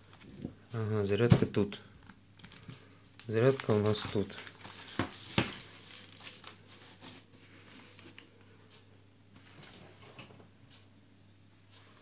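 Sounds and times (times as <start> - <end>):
plastic bag crinkling: 2.4 - 7.0.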